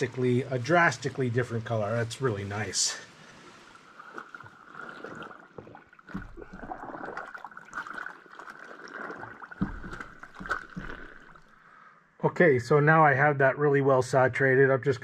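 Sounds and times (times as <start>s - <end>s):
water sloshing and squelching: 0.0s - 11.7s.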